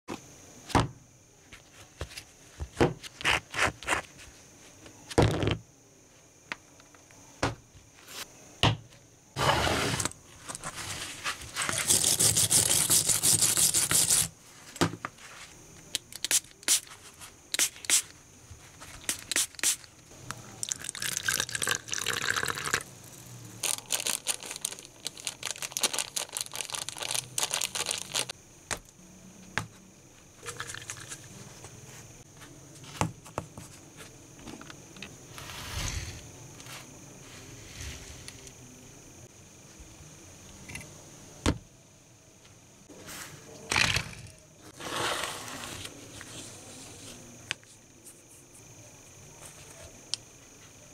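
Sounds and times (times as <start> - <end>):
loud steady hissing: 15.5 - 29.4.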